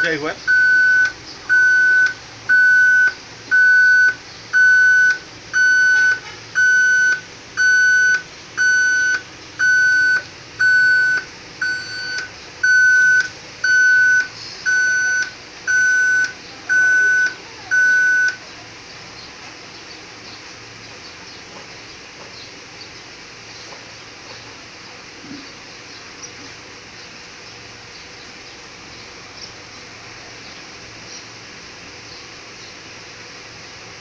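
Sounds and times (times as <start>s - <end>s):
electronic beeps: 0.0s - 18.4s.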